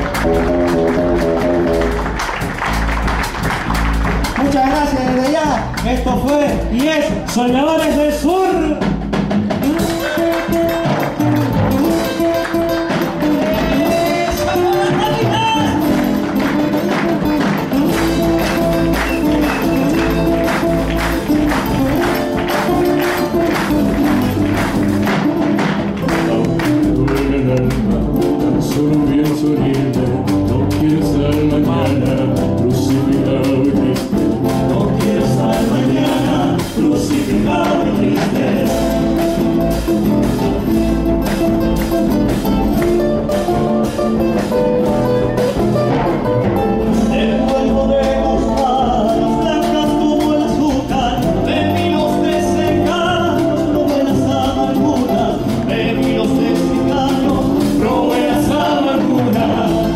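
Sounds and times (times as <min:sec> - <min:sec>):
strummed acoustic guitars: 0:00.0 - 0:59.9
vocal group singing in harmony: 0:28.6 - 0:39.2, 0:46.9 - 0:59.9.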